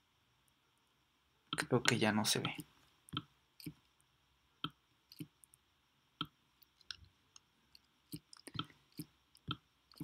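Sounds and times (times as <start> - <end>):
computer mouse clicking: 6.2 - 10.0.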